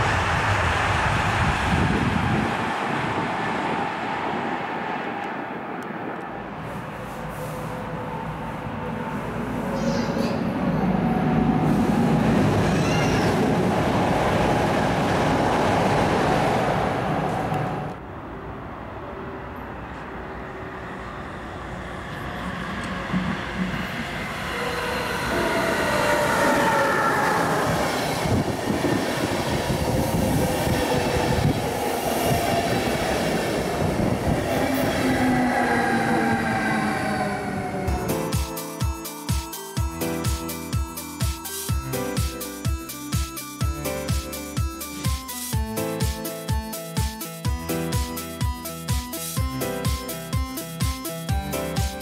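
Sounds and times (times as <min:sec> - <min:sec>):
rail rumble: 0:00.0 - 0:38.4
electric locomotive passing: 0:00.0 - 0:52.0
high-speed train passing: 0:00.0 - 0:52.0.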